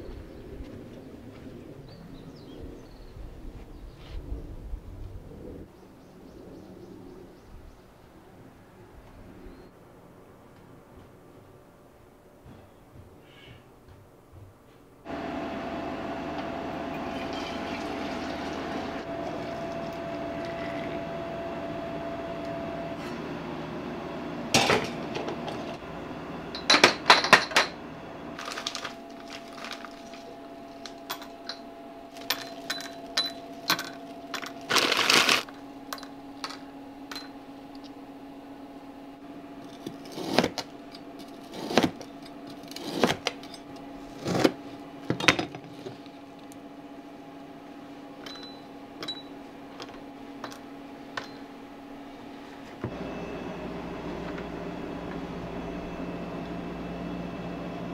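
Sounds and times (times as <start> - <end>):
kitchen equipment hum: 15.1 - 57.9.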